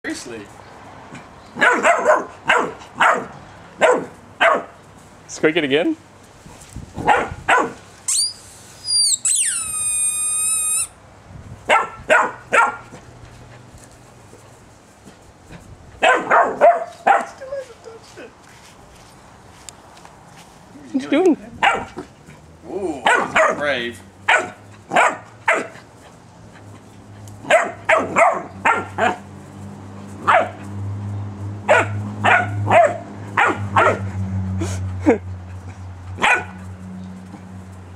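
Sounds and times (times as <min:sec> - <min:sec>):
puppy yapping: 0:01.6 - 0:04.7, 0:07.0 - 0:10.9, 0:21.6 - 0:22.0, 0:23.0 - 0:23.6, 0:24.3 - 0:25.8, 0:27.4 - 0:29.2, 0:36.2 - 0:36.6
rubber squeaky ball squeaking: 0:08.1 - 0:10.9.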